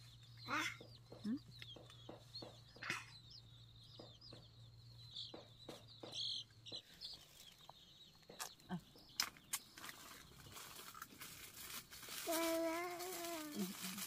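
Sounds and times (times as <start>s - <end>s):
chickens peeping: 0.0s - 14.0s
sharp knocks: 3.9s - 6.9s.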